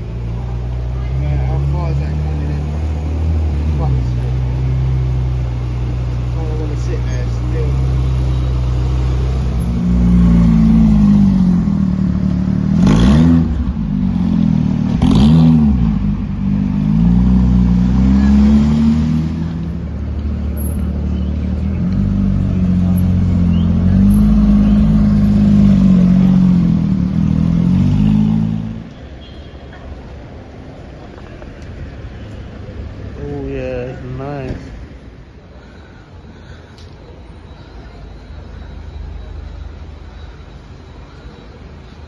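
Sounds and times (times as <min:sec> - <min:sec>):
car engine revving: 0:00.0 - 0:28.9.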